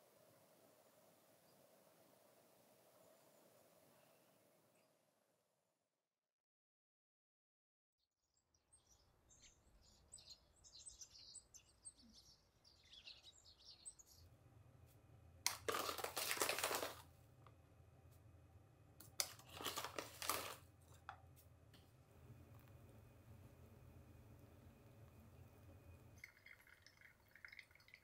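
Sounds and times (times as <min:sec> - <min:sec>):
small birds chirping: 0:08.5 - 0:14.3
low room hum: 0:11.9 - 0:28.0
coffee bag rustling and crinkling: 0:15.5 - 0:17.1, 0:19.1 - 0:21.1.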